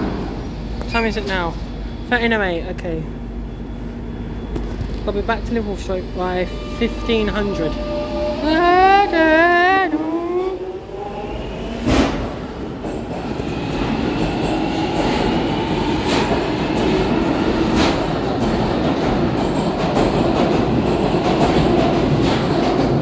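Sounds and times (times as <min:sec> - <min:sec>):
train wheels running: 0:11.8 - 0:23.0.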